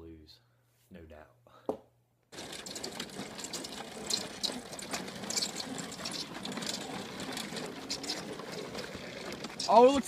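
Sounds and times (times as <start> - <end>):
lawnmowers running: 2.3 - 10.0.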